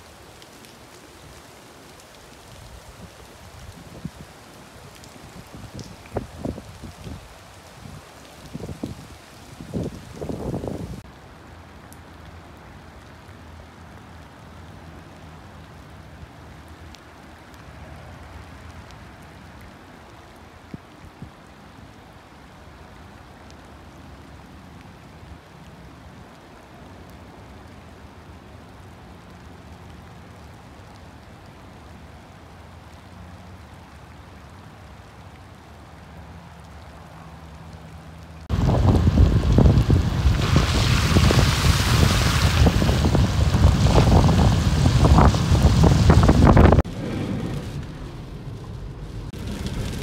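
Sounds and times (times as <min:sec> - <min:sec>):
steady rain: 0:00.0 - 0:50.0
running water: 0:31.7 - 0:50.0.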